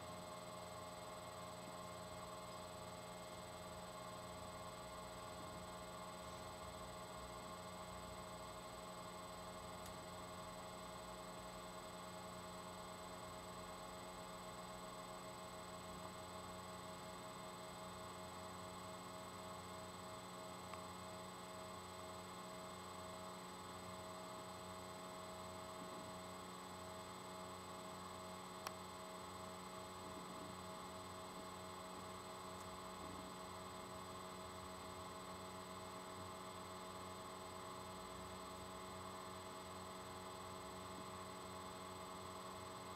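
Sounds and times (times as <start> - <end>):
faint electrical hum: 0.0 - 42.9.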